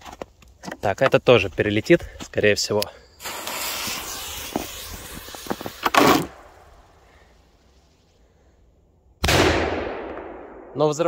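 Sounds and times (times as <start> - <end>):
firecracker bang: 3.2 - 6.7
catapult snapping: 5.2 - 6.4.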